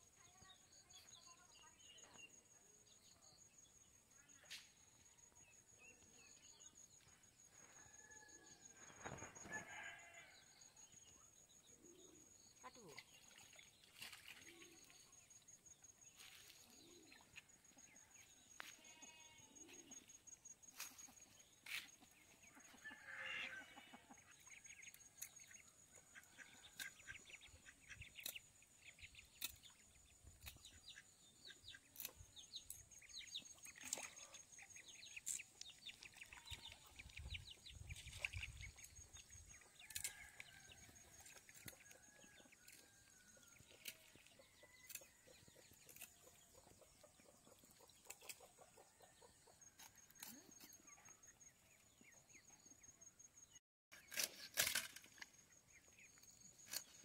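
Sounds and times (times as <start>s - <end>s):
animal call: 22.6s - 24.2s.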